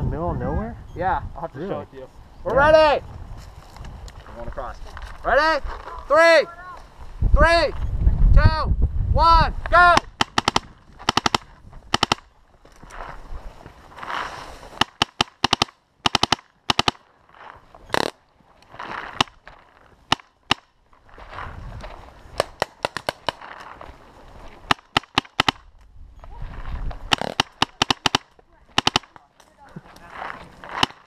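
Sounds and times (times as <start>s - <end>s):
paintball markers firing: 9.9s - 12.3s, 14.7s - 17.1s, 17.9s - 18.2s, 19.0s - 19.4s, 20.1s - 20.7s, 22.3s - 23.8s, 24.6s - 25.7s, 27.1s - 30.0s, 30.6s - 31.0s.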